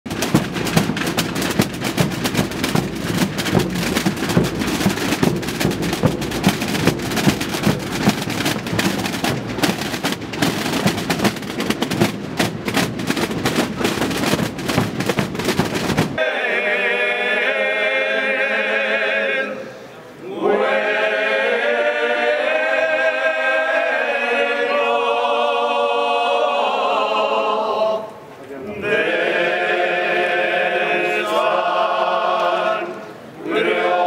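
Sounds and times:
marching drums rattling: 0:00.1 - 0:16.2
voices singing a chant: 0:16.2 - 0:34.0.

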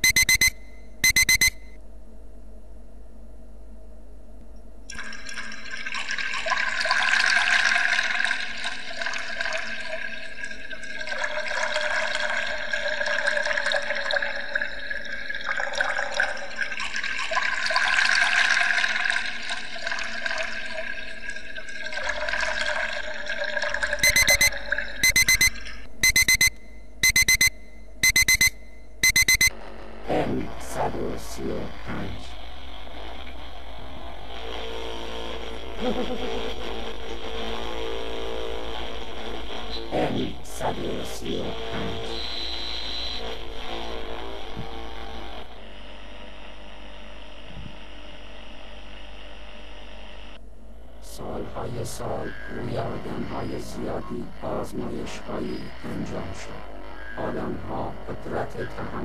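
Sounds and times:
alarm clock beeping: 0:00.0 - 0:01.7, 0:24.0 - 0:29.5.

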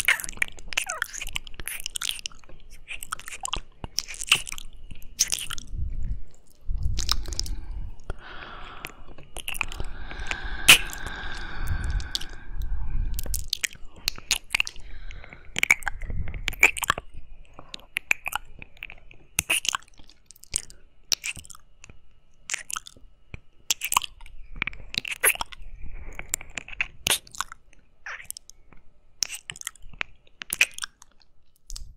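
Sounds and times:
wet licking and kissing sounds: 0:00.0 - 0:05.8, 0:06.9 - 0:14.8, 0:18.0 - 0:21.5, 0:26.3 - 0:27.5, 0:29.2 - 0:29.8, 0:30.4 - 0:31.1.

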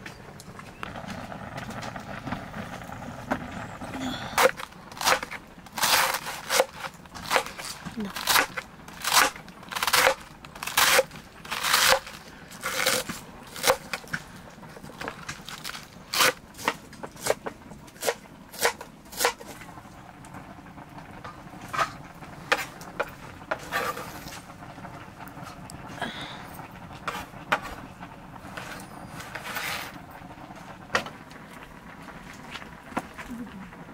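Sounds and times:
knife chopping cabbage on board: 0:04.4 - 0:13.9, 0:18.0 - 0:19.4.

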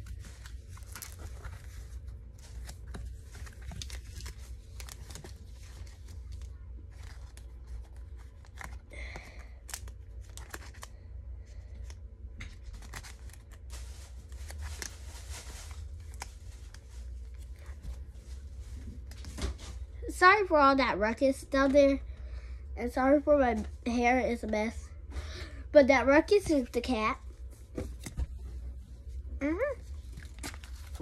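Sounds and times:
card packaging crinkling and tearing: 0:00.0 - 0:19.7, 0:29.9 - 0:31.0
steady low hum: 0:00.0 - 0:31.0.

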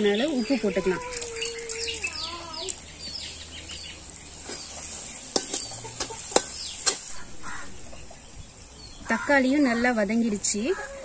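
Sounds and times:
birds chirping: 0:00.0 - 0:11.0
food sizzling in oil: 0:04.0 - 0:08.3.

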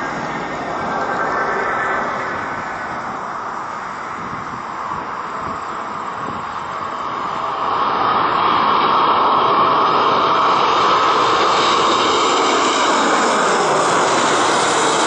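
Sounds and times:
jet engines rushing overhead: 0:00.0 - 0:15.0.

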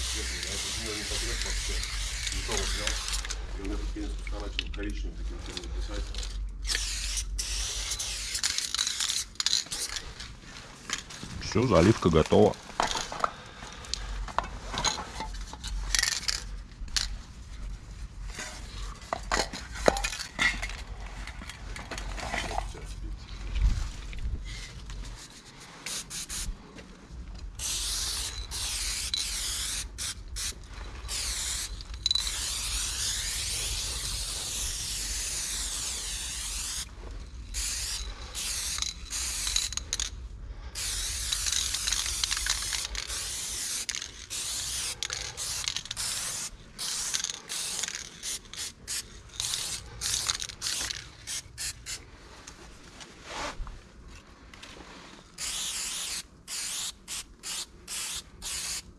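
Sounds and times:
spray-paint can hissing: 0:00.0 - 0:03.1, 0:06.6 - 0:09.2, 0:25.8 - 0:26.5, 0:27.6 - 0:36.9, 0:37.5 - 0:39.8, 0:40.8 - 0:52.0, 0:55.4 - 0:58.9.

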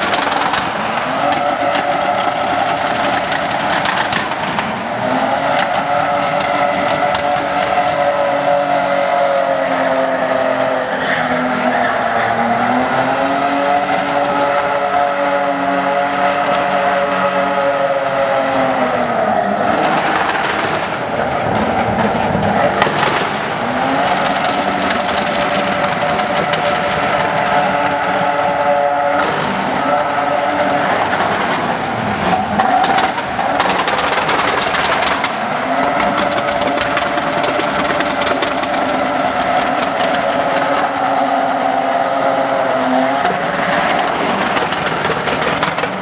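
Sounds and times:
tyres squealing: 0:00.0 - 0:04.4, 0:05.1 - 0:20.2
engine at high revs: 0:00.0 - 0:46.0.

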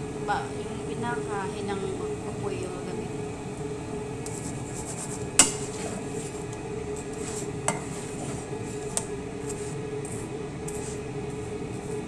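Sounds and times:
steady low hum: 0:00.0 - 0:12.0
utensil clinking on frying pan: 0:05.4 - 0:05.8, 0:07.7 - 0:08.0.

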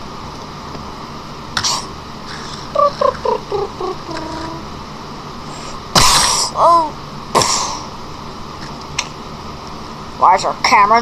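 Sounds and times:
child making mouth sound effects: 0:01.6 - 0:04.6.

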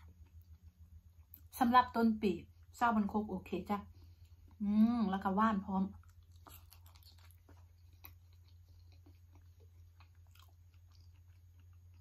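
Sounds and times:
person chewing food: 0:00.0 - 0:01.5, 0:05.9 - 0:12.0.

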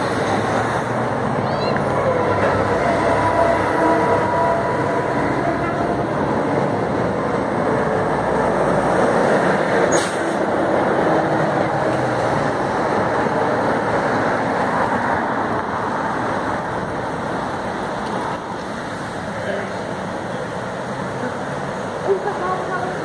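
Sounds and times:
heavy lorries passing: 0:00.0 - 0:23.0.

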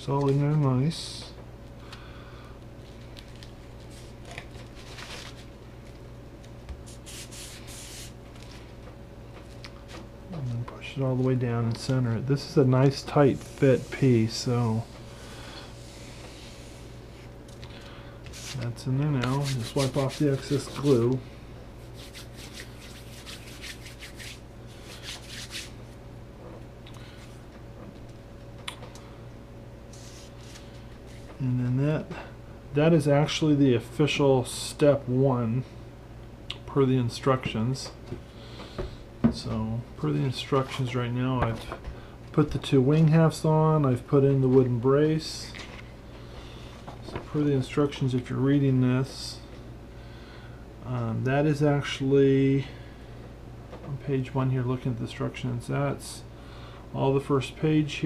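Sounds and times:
steady low hum: 0:00.0 - 0:58.0
hands rubbing on foam: 0:06.8 - 0:08.2, 0:19.2 - 0:21.2, 0:21.8 - 0:25.8.

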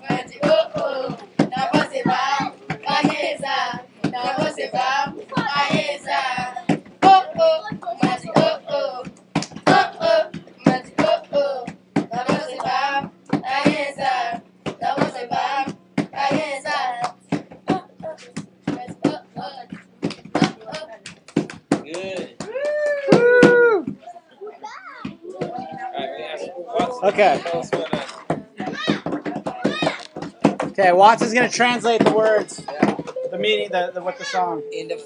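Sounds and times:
children singing: 0:00.0 - 0:09.0, 0:09.6 - 0:17.0.

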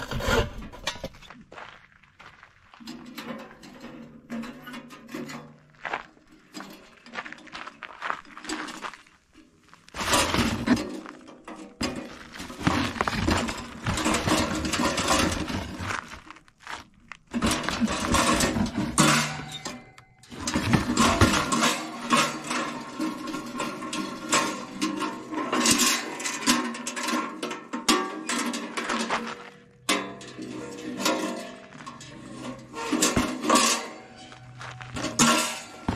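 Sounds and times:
charcoal and ash rattling: 0:02.8 - 0:35.9
metal panels clanking: 0:10.0 - 0:16.2, 0:17.3 - 0:35.9.

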